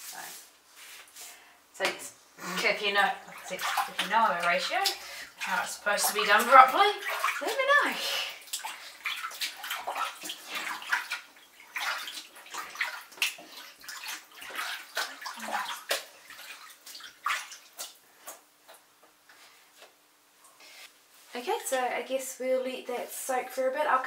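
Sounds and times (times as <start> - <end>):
fabric sloshing in sink water: 2.6 - 18.4.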